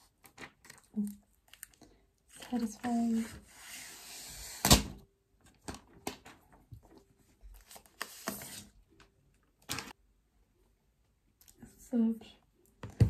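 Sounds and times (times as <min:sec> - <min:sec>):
thin plastic crinkling: 0:00.0 - 0:03.2
plastic film peeling and crackling: 0:00.2 - 0:03.2.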